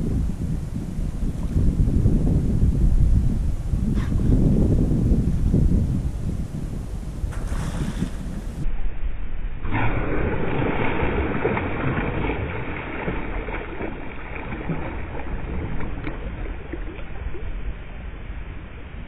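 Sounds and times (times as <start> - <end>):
water splashing around kayak: 7.2 - 8.8, 9.6 - 19.0.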